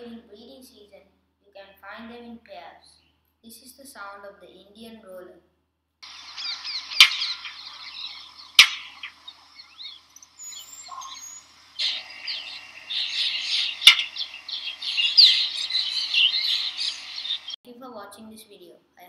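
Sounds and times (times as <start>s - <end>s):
sharp clicks: 6.0s - 9.4s, 10.2s - 17.6s
bird harsh chirps and squawks: 6.0s - 17.6s.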